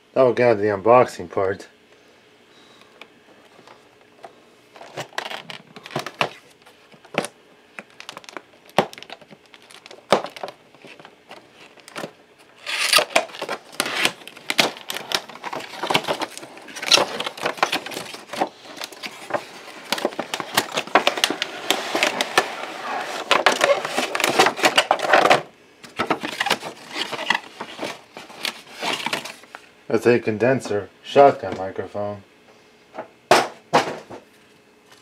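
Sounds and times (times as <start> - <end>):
cardboard box crinkling: 4.8 - 25.4, 26.0 - 29.5.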